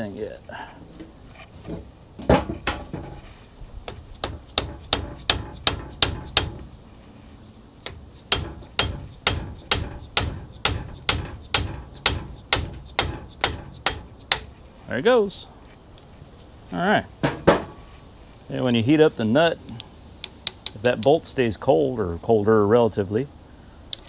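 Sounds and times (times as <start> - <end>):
hammer striking metal wrench: 4.5 - 6.6, 7.9 - 14.4.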